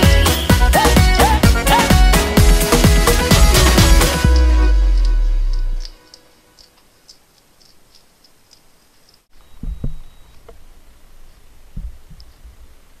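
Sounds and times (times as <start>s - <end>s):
low thuds: 9.6s - 10.6s, 11.7s - 12.7s.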